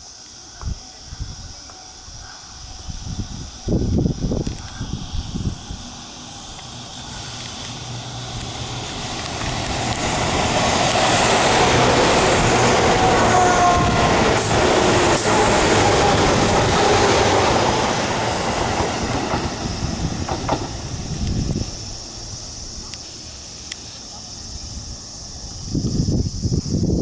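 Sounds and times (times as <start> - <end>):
train whine: 0.0 - 26.2
electric train passing: 0.0 - 26.9
rail joint clacks: 6.5 - 21.9.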